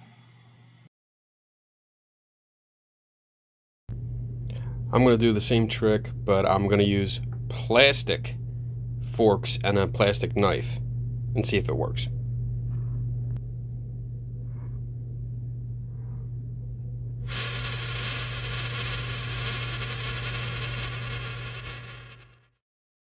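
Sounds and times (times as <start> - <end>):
low electrical hum: 3.9 - 22.4
coin spinning on wooden desk: 17.3 - 22.6.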